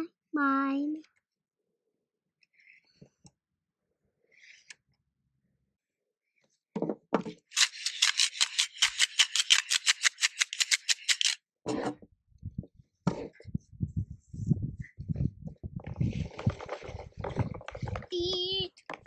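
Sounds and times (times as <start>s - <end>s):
abacus beads clacking: 7.4s - 11.4s.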